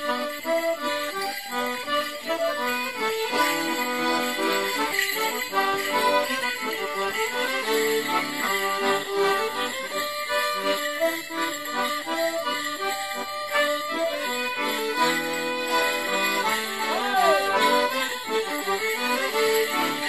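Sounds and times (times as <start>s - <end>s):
accordion folk band playing: 0.0s - 20.0s.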